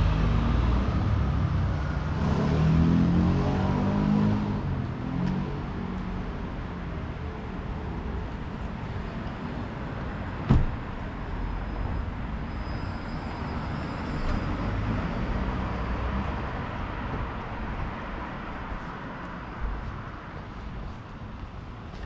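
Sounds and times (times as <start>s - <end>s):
street traffic rumble: 0.0s - 22.0s.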